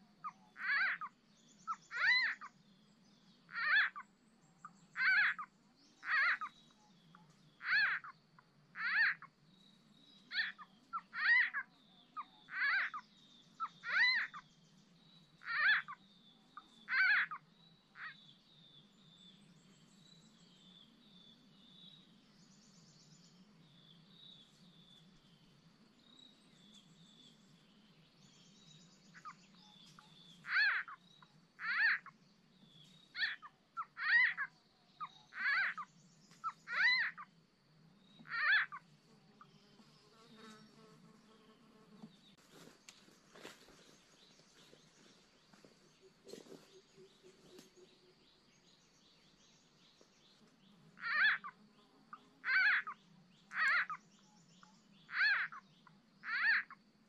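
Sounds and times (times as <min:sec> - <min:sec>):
small frogs calling: 0:00.0 - 0:02.6, 0:03.5 - 0:04.0, 0:05.0 - 0:06.6, 0:07.6 - 0:08.2, 0:08.8 - 0:09.4, 0:10.3 - 0:14.4, 0:15.4 - 0:16.0, 0:16.6 - 0:18.2, 0:29.1 - 0:32.2, 0:33.1 - 0:37.4, 0:38.2 - 0:38.9, 0:51.0 - 0:56.8.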